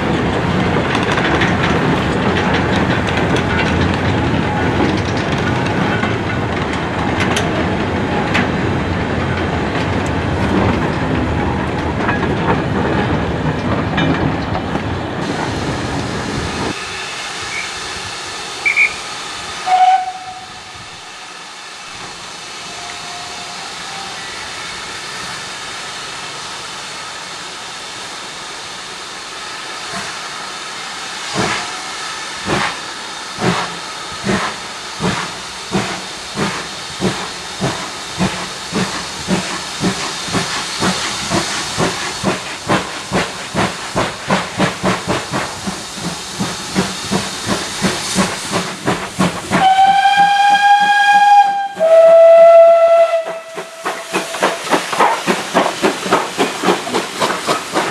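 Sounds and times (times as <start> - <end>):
steam locomotive exhaust beats: 0.0 - 57.9
steam hissing: 15.0 - 57.9
steam whistle blasts: 16.8 - 17.8, 18.6 - 20.7, 22.6 - 24.4, 49.6 - 54.2.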